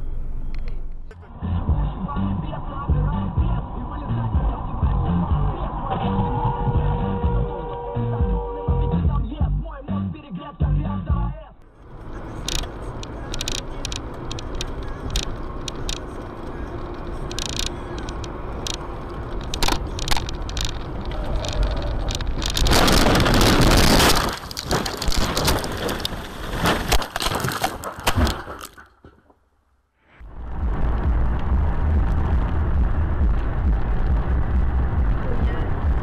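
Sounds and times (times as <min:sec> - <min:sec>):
road and engine noise: 0:00.0 - 0:36.0
car crash crunch: 0:11.7 - 0:29.5
knocks and crackles: 0:11.8 - 0:29.4
clicks and rattles: 0:12.3 - 0:29.2.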